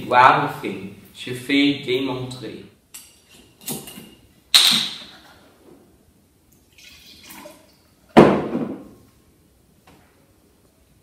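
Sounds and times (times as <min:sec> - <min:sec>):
wine pouring into glass: 0:06.7 - 0:07.8
bottle knocking on table: 0:08.2 - 0:08.9.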